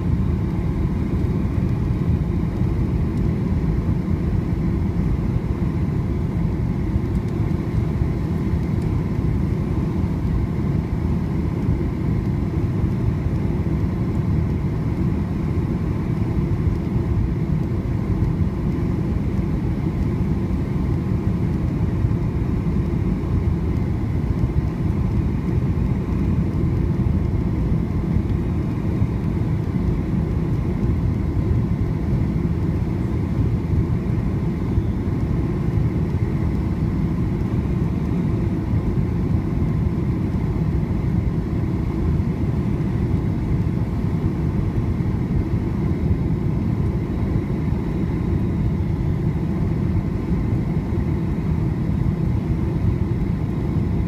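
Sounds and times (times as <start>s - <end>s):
aircraft cabin rumble: 0.0s - 54.0s.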